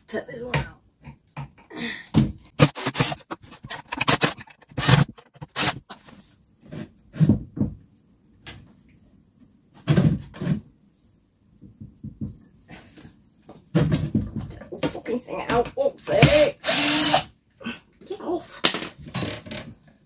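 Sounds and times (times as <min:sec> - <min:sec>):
wooden battens and tools clattering: 0:02.5 - 0:06.3.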